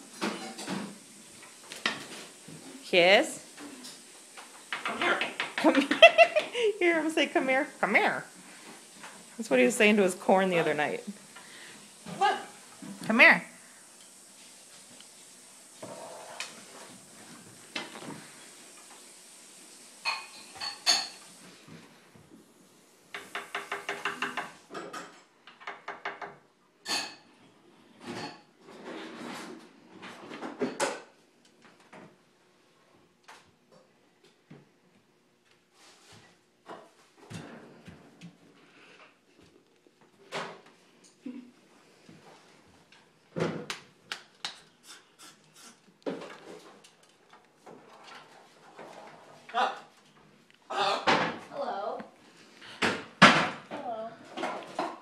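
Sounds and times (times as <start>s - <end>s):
parrot knocking and tapping on wood: 4.7s - 5.8s, 23.2s - 24.5s, 25.5s - 26.4s
parrot claws tapping on wood: 23.2s - 24.5s.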